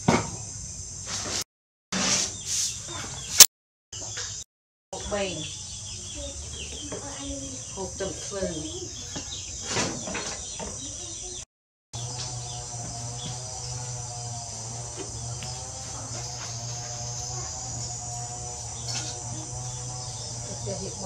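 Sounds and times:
insects chirring: 0.0s - 1.3s, 5.0s - 11.4s, 12.0s - 21.0s
steady low hum: 12.0s - 21.0s.

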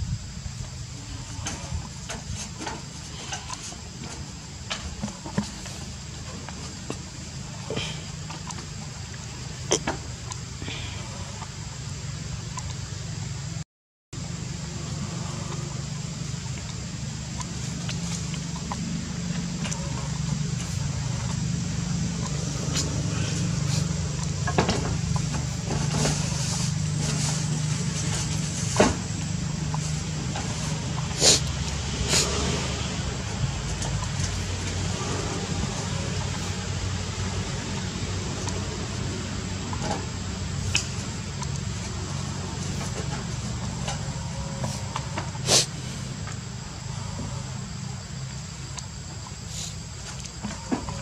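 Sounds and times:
low engine-like rumble: 0.0s - 13.6s, 14.2s - 51.0s
low hum: 14.2s - 50.7s
even hiss: 14.2s - 51.0s.

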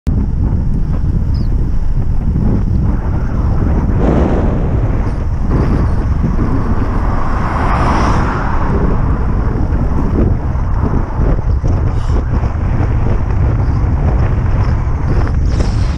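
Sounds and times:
wind buffeting microphone: 0.1s - 15.9s
car passing: 3.0s - 15.8s.

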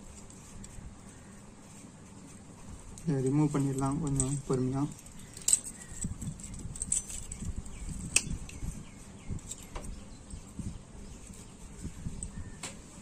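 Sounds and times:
metal tool clicking and scraping: 3.6s - 8.7s.

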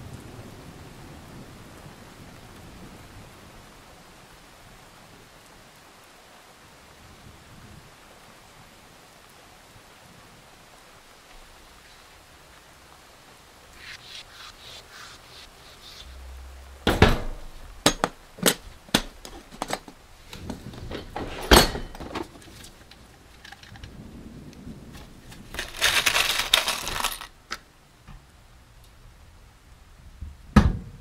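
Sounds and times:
metal rivets jingling: 25.5s - 27.3s.

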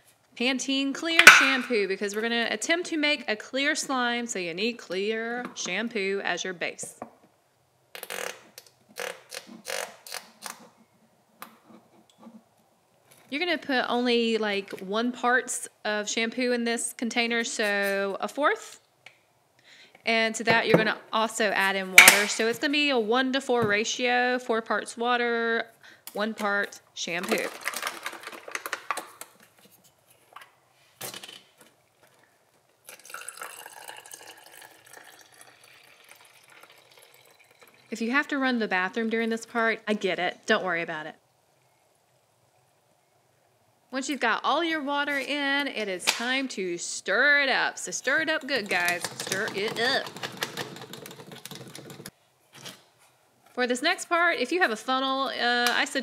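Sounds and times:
shampoo pouring into plastic bottle: 32.9s - 37.9s.

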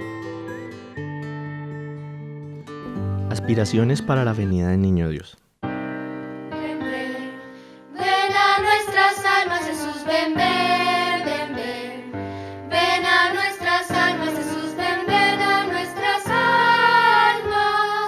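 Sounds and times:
children's choir singing: 6.6s - 18.0s.

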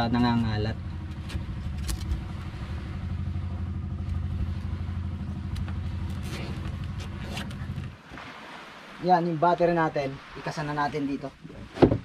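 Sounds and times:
engine droning: 0.0s - 9.0s
cable tie ratcheting zip: 1.8s - 2.2s, 5.6s - 7.9s.

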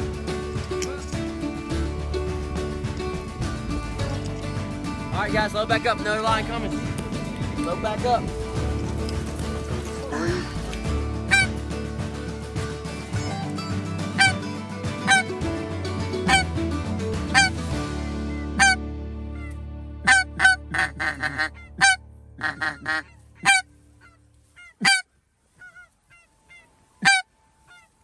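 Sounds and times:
background music: 0.0s - 24.2s
goose call honks: 11.2s - 11.6s, 14.2s - 14.4s, 15.0s - 15.3s, 16.2s - 16.5s, 17.3s - 17.6s, 18.3s - 18.8s, 19.4s - 27.9s.

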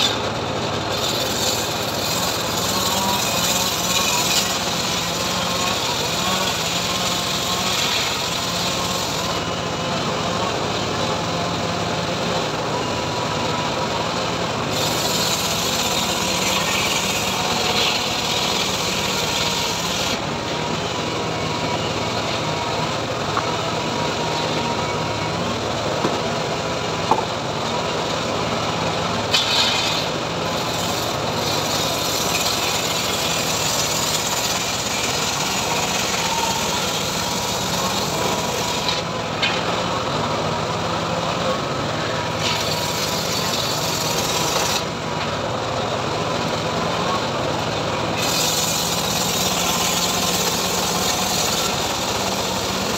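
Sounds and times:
circular saw ripping a plank: 0.0s - 9.6s, 14.6s - 20.3s, 29.3s - 39.7s, 42.3s - 45.0s, 48.1s - 52.9s.

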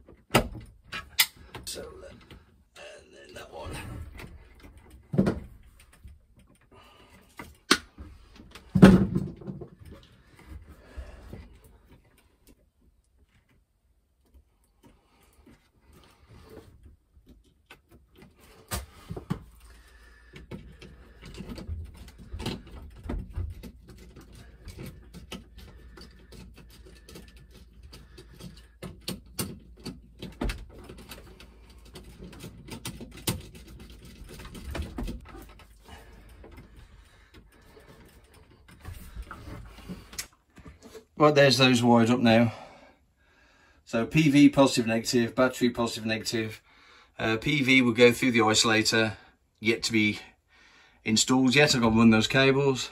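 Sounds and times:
cables rustling: 9.6s - 41.2s
small clicks and knocks: 16.8s - 41.0s.

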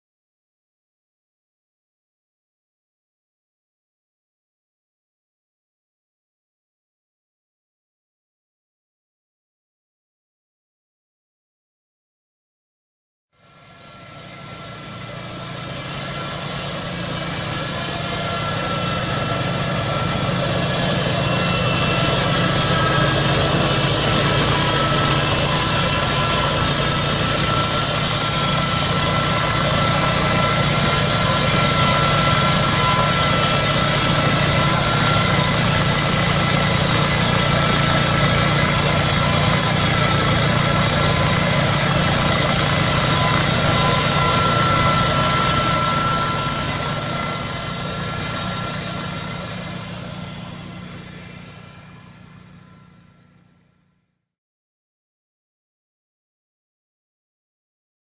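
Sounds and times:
mower engine running: 13.4s - 54.1s.

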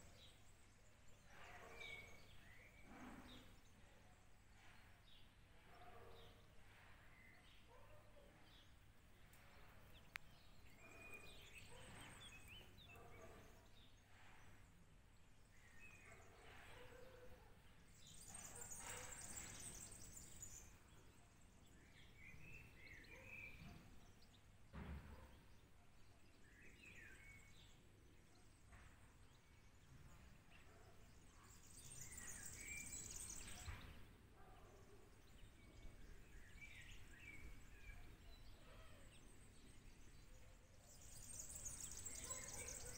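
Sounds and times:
bird chirps and calls: 15.6s - 24.4s, 29.8s - 42.9s.

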